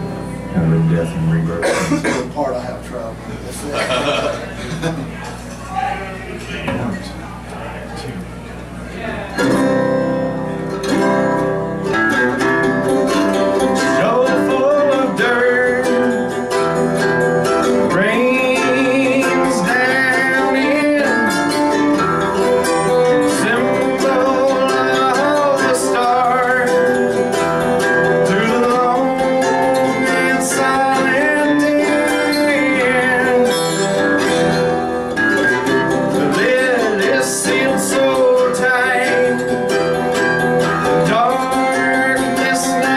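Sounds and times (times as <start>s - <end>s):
mandolin and plucked strings playing: 0.0s - 2.2s, 9.4s - 42.9s
person singing: 13.7s - 16.6s, 17.8s - 34.3s, 35.9s - 42.9s.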